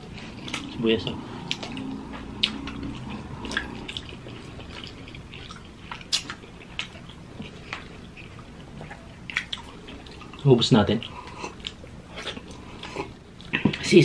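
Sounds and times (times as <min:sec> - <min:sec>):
chewing: 0:00.0 - 0:14.0
wet mouth clicks and lip smacks: 0:04.8 - 0:07.1.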